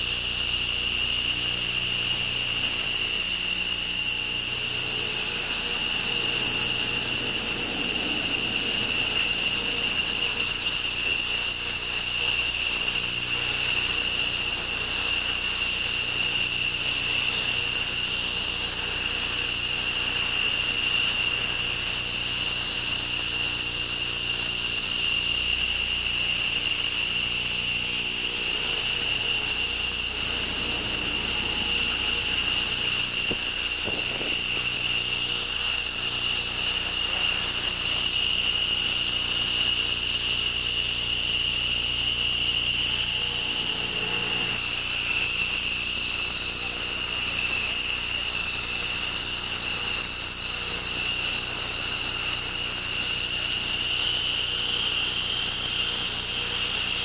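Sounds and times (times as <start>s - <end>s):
jet engines idling: 2.7s - 14.1s, 27.7s - 39.0s, 42.0s - 46.8s.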